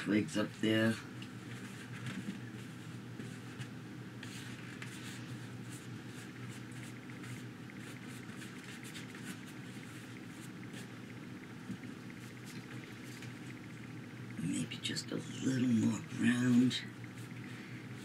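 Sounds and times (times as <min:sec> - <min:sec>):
low steady hum: 0:00.0 - 0:18.0
paintbrush scratchy brushing: 0:01.5 - 0:11.1, 0:16.2 - 0:18.0.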